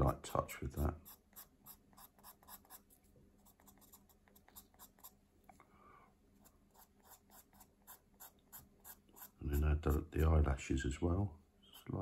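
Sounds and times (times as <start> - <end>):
pencil strokes on paper: 0.8 - 5.2, 6.4 - 10.3.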